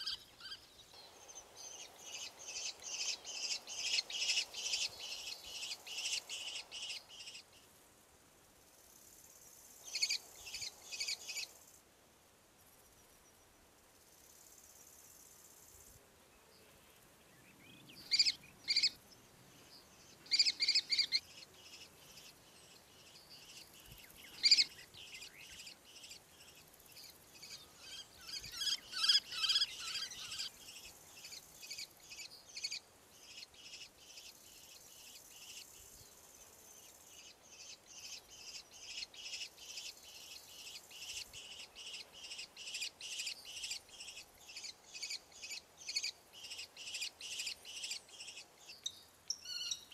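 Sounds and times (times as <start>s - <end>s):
kestrels calling: 0.0s - 7.5s, 17.9s - 19.0s, 20.1s - 26.7s, 27.4s - 35.7s, 37.2s - 49.9s.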